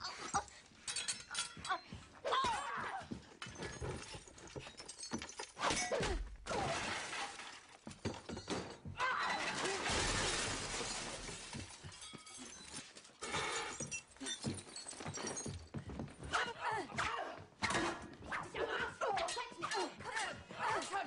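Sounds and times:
objects crashing and shattering: 3.5 - 13.2.

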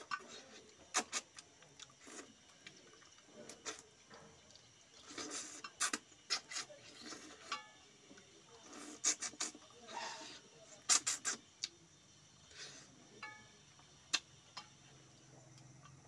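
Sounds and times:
sucking at fingers: 0.0 - 3.9, 4.6 - 7.5, 8.6 - 11.8
lip smacks and chewing: 0.1 - 7.2.

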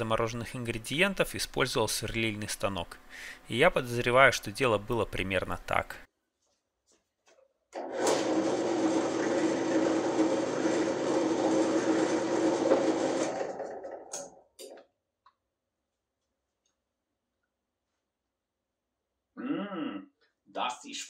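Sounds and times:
drill press running: 7.7 - 14.8.

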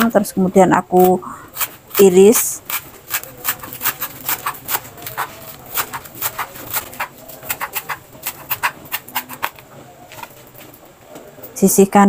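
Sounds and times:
knife chopping on plastic board: 1.6 - 9.6.

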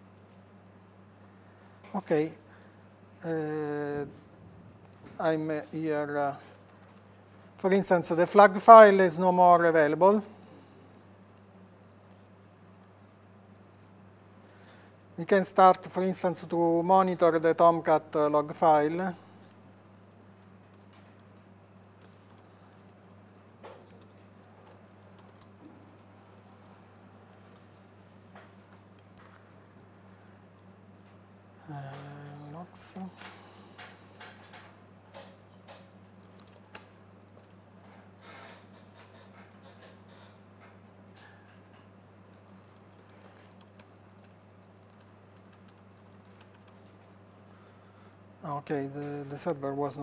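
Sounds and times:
steady low hum: 0.0 - 50.0
faint keyboard typing: 4.1 - 7.8, 12.0 - 14.8, 19.2 - 32.4, 33.0 - 47.5.

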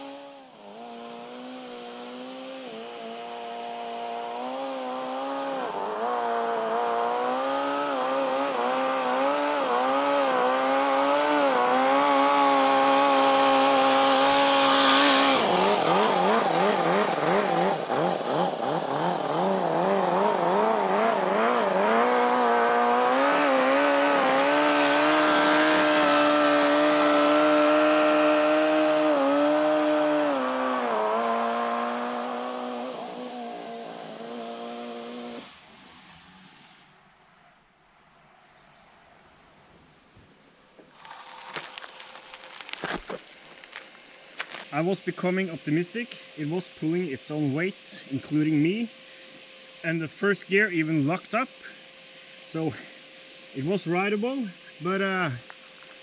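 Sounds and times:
model engine at high revs: 0.0 - 36.9.

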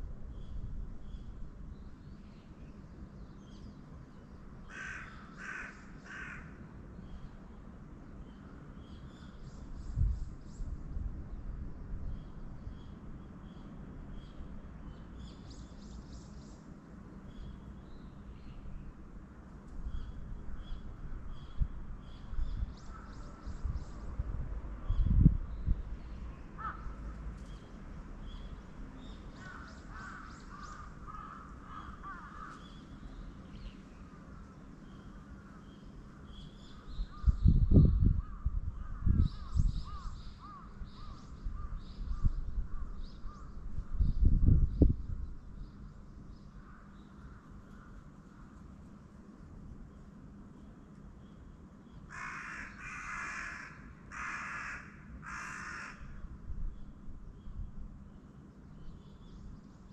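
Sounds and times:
crows cawing: 4.7 - 6.6, 26.6 - 27.0, 29.4 - 32.7, 39.9 - 41.8, 52.1 - 56.2.

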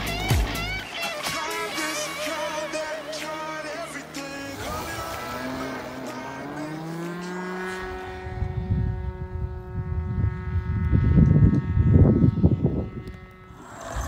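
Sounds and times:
model airplane engine droning: 0.0 - 14.0
wind buffeting microphone: 7.0 - 14.0.

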